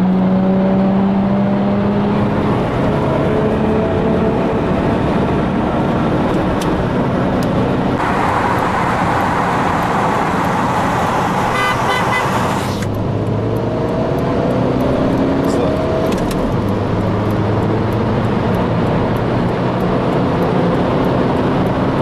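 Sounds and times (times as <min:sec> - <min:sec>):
car engine accelerating: 0:00.0 - 0:22.0
wind and road noise: 0:00.0 - 0:22.0.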